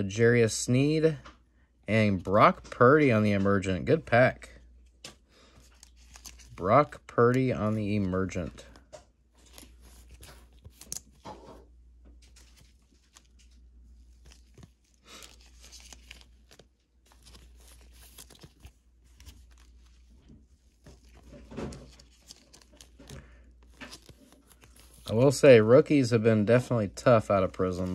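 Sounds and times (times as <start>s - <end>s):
plastic card sleeve crinkling: 4.7s - 27.9s.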